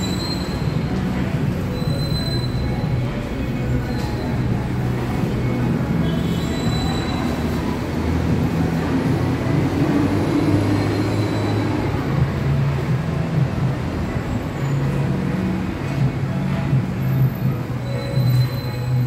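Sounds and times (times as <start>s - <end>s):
train rumbling on rails: 0.0s - 19.0s.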